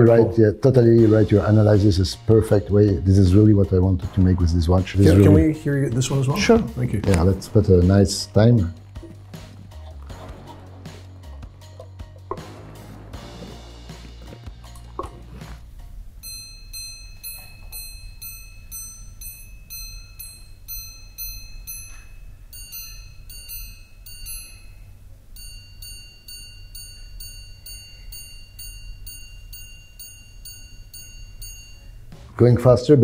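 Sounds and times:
watch chiming on gongs: 16.2 - 32.2.

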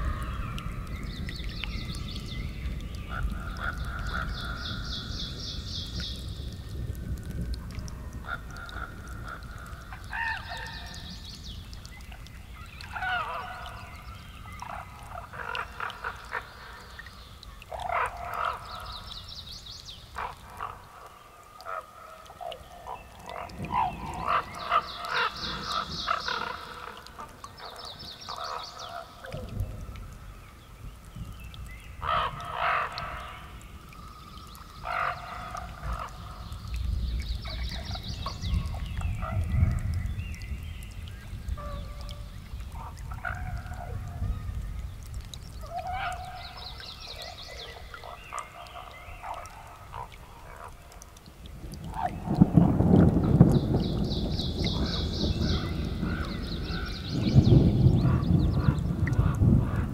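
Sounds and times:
wildlife calling: 0.0 - 6.5, 8.1 - 30.5, 31.4 - 59.9
distant thunder rumbling: 51.5 - 59.9.

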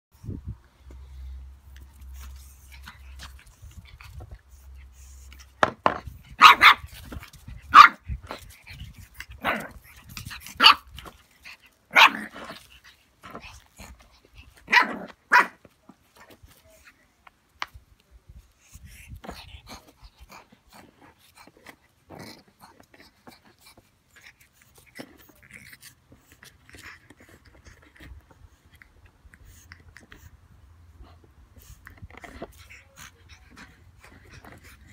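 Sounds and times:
puppy scuffling and snuffling: 0.2 - 34.9
puppy barking: 6.4 - 7.0, 7.7 - 8.0, 10.6 - 10.9, 11.9 - 12.3, 14.7 - 15.6.

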